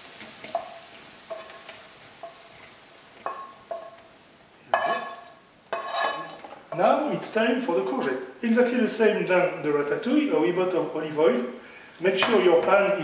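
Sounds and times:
oil sizzling in a pan: 0.0 - 7.3
wooden spoon scraping a pan: 0.1 - 4.1, 4.7 - 8.2.

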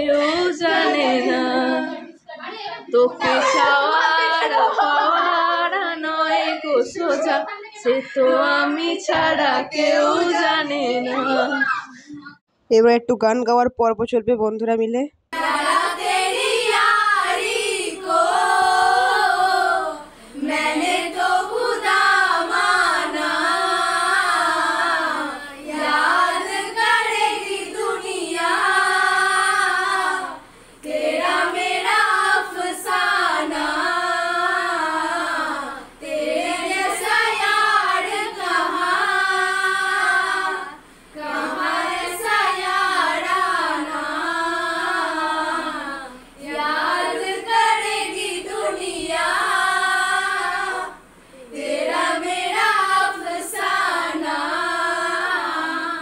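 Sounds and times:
young women singing together: 0.0 - 12.4, 15.3 - 56.0.

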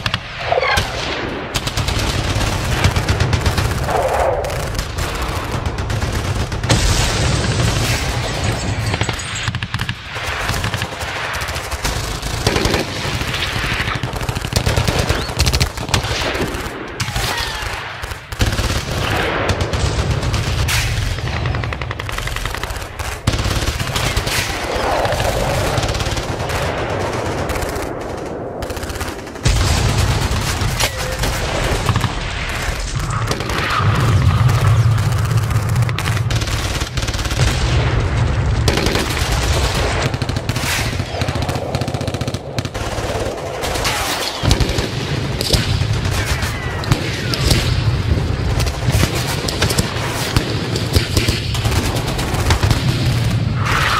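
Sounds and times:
airsoft rifles firing: 0.0 - 38.0, 38.6 - 53.9.

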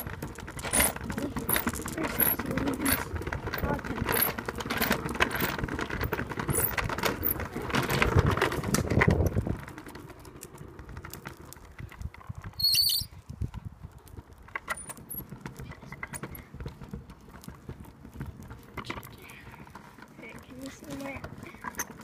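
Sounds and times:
plastic wheels rolling on pavement: 0.0 - 22.0
high squeak: 12.6 - 13.1.

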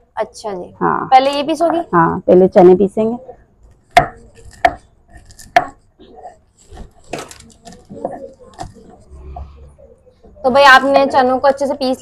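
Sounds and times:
gritty stone grinding: 4.4 - 5.8.

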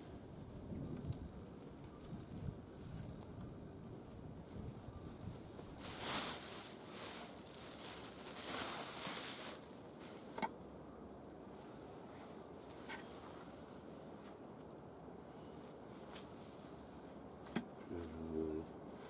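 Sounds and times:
plastic bag rustling: 5.6 - 10.4.

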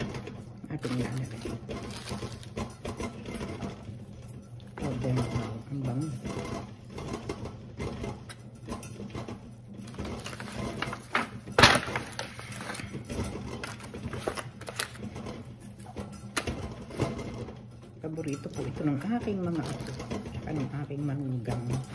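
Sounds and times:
foil crinkling: 0.7 - 2.6, 10.2 - 13.0, 13.6 - 15.0.

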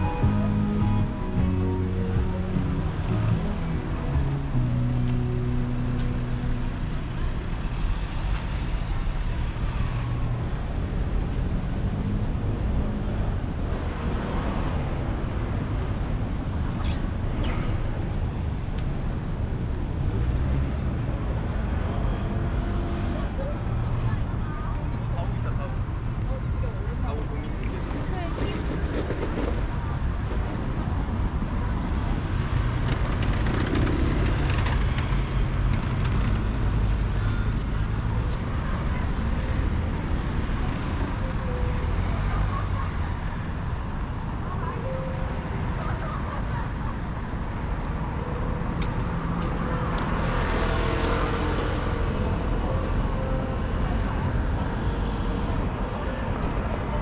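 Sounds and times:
cars passing: 0.0 - 57.0
vehicle passing by: 20.0 - 24.2, 47.9 - 56.0.

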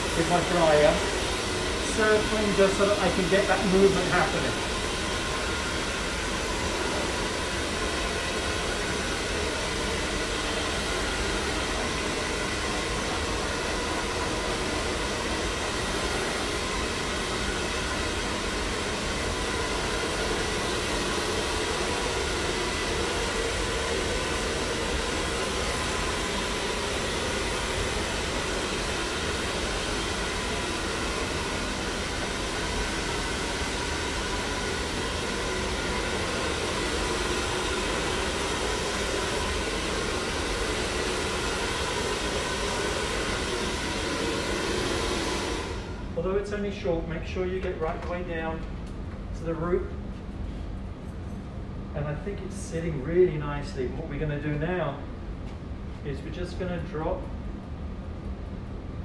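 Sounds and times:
hair dryer running: 0.0 - 46.8.

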